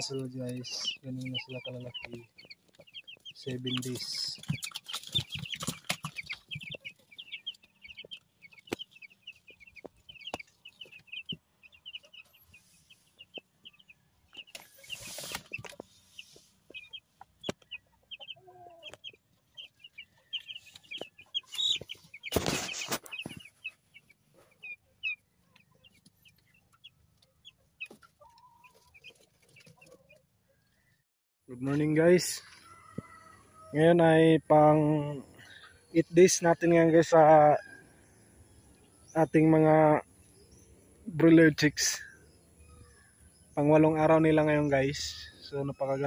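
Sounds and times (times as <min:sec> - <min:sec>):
chicks peeping: 0:00.0 - 0:30.9, 0:31.5 - 0:46.0
rustling: 0:14.5 - 0:16.8, 0:20.4 - 0:24.6.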